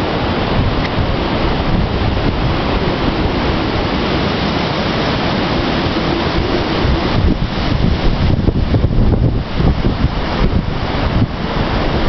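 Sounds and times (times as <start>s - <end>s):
wind blowing across microphone: 0.0s - 12.0s.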